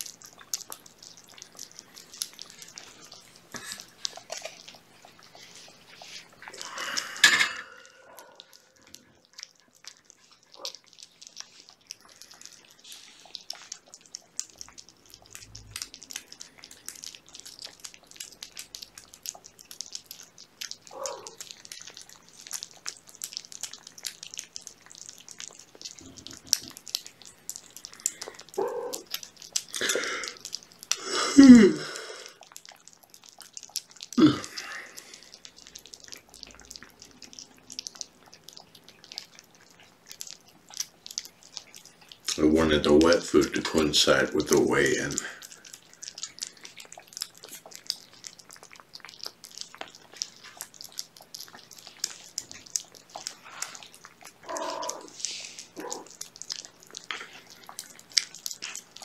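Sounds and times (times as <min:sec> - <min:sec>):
cats chewing and lapping food: 0:00.0 - 0:59.0
cat calls: 0:28.6 - 0:29.1.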